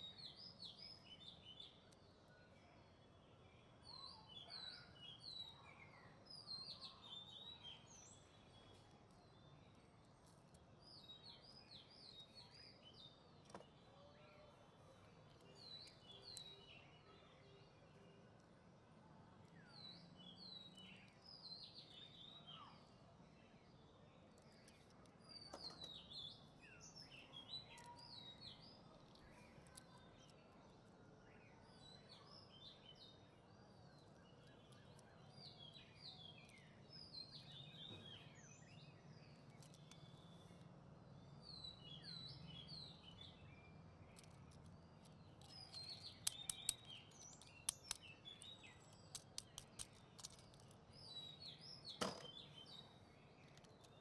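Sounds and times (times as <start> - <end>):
faint birds chirping: 0.0 - 54.0
toy vehicles clicking: 39.4 - 40.4, 44.0 - 50.9, 53.4 - 54.0.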